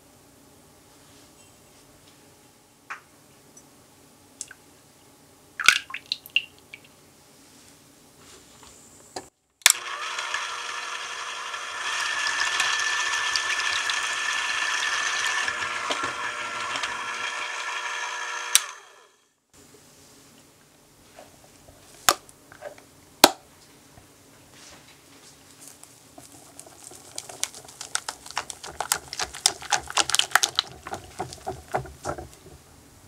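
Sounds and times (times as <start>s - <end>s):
electric hand mixer whine: 9.7s - 19.2s.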